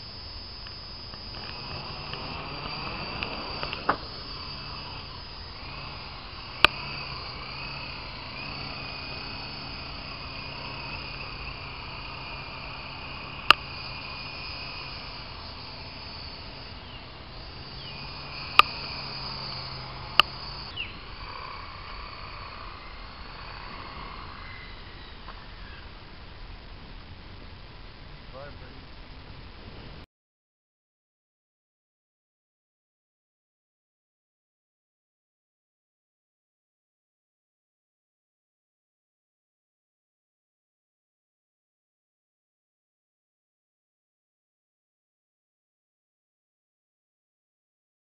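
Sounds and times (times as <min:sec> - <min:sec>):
model helicopter whine: 0:00.0 - 0:26.7
sharp clicks: 0:17.7 - 0:20.8.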